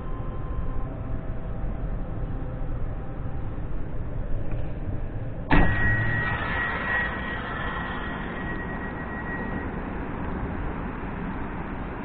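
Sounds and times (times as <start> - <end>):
train hum: 0.0 - 12.0
train door clunk: 5.5 - 6.5.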